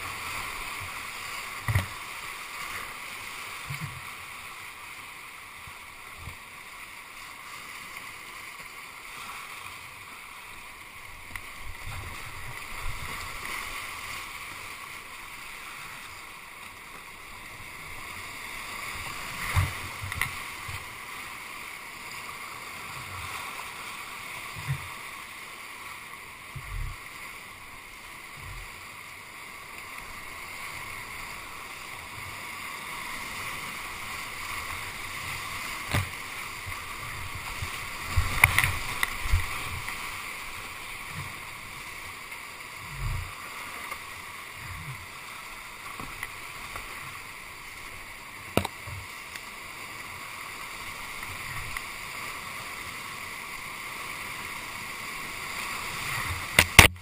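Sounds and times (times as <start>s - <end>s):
whitewater rapids rushing: 0.0s - 57.0s
thumps and splashes against kayak: 0.2s - 2.1s, 18.9s - 20.9s, 28.3s - 28.8s, 34.0s - 41.9s, 42.8s - 47.2s, 48.4s - 49.4s, 56.0s - 57.0s.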